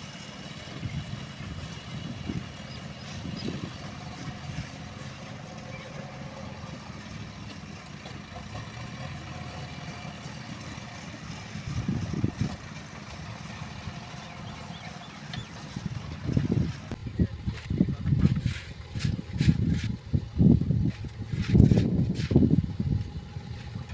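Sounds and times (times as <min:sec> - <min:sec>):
distant diesel engine running: 0:00.0 - 0:23.9
low rumbles: 0:00.0 - 0:23.9
bucket scraping soil: 0:18.2 - 0:20.0, 0:20.9 - 0:22.4.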